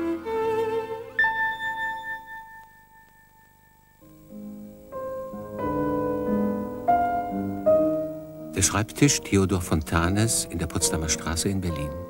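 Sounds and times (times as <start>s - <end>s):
high struck note ringing: 1.2s - 5.6s.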